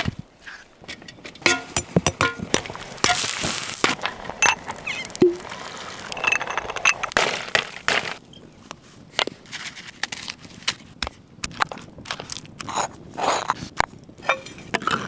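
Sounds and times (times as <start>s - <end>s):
sharp cracks and knocks: 7.0s - 8.2s.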